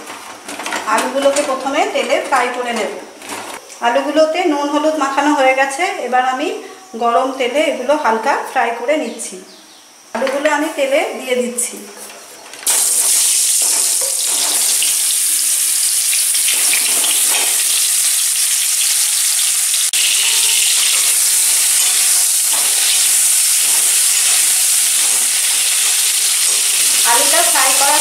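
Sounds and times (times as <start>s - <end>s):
potatoes sizzling in hot oil: 12.7s - 28.0s.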